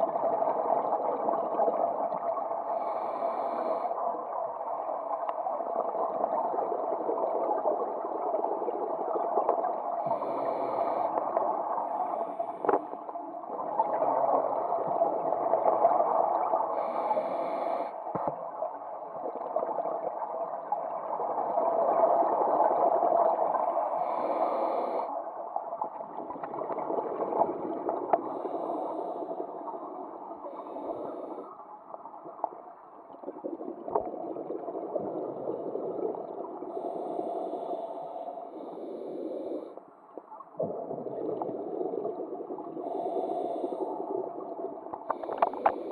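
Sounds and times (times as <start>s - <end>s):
diver breathing through regulator: 2.7s - 4.0s, 10.0s - 13.1s, 16.8s - 18.0s, 23.6s - 25.2s, 28.1s - 29.8s, 30.4s - 31.6s, 36.7s - 39.9s, 41.6s - 44.4s, 45.0s - 45.9s
bubbles gurgling underwater: 13.4s - 16.8s, 25.8s - 28.9s, 32.2s - 37.0s, 40.6s - 45.9s.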